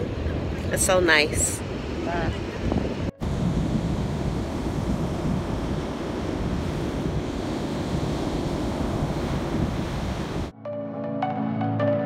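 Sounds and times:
ocean surf washing onto beach: 0.0s - 10.5s
wind buffeting microphone: 0.0s - 10.5s
music: 10.6s - 12.0s.

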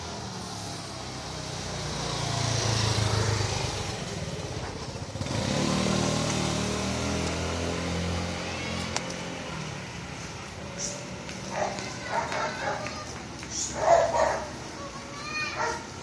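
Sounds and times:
motor scooter passing by: 0.0s - 16.0s
engine running: 0.3s - 11.5s.

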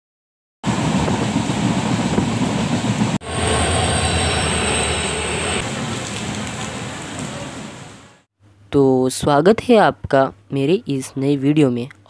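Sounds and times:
train rumble and rushing wind: 0.6s - 8.2s
thin high whine: 3.2s - 7.0s.

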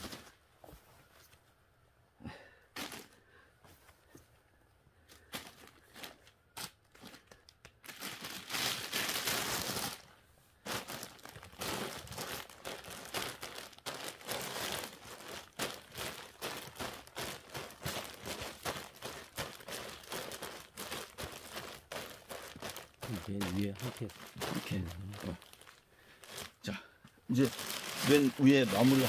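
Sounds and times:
plastic bag crinkling: 5.2s - 26.7s, 27.3s - 29.0s
bagged substrate crackling underfoot: 5.2s - 29.0s.

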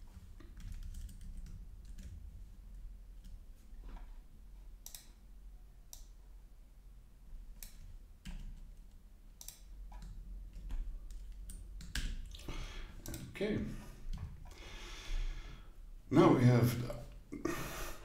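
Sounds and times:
mouse and keyboard clicks: 4.8s - 5.2s.

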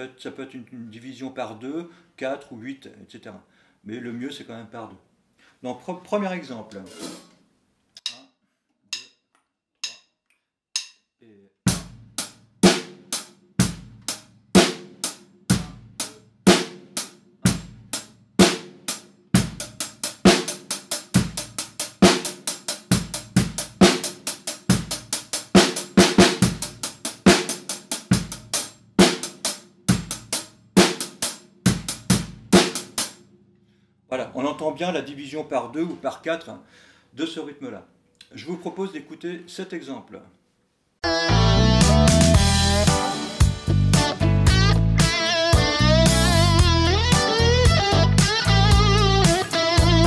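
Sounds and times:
drum kit playing a groove: 11.7s - 33.2s, 41.0s - 50.0s.

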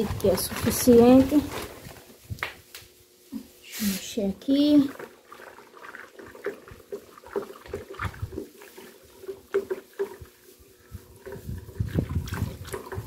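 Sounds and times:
stick stirring water in bucket: 0.0s - 2.1s, 3.8s - 13.0s.

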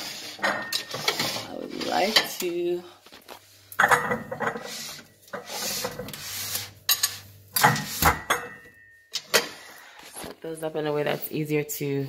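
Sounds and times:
dishes scraping on shelf: 0.0s - 2.7s, 3.8s - 9.9s
dishes clinking: 0.4s - 1.4s, 3.8s - 4.7s, 6.9s - 9.6s.

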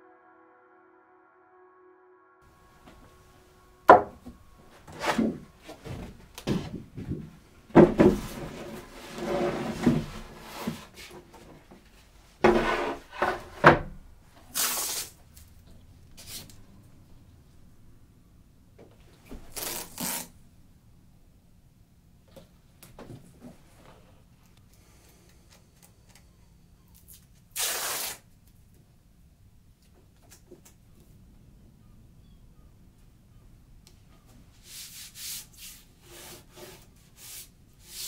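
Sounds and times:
wood knocks and bumps: 3.9s - 8.9s.

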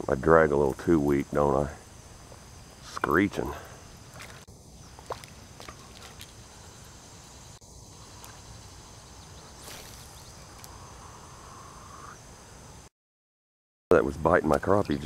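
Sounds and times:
high-pitched insect drone: 1.1s - 12.9s.

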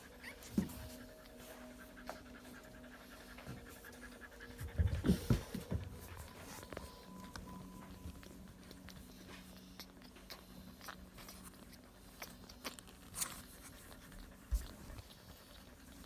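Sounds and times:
faint low hum: 0.0s - 16.0s
puppies rustling on cloth: 0.0s - 16.0s.

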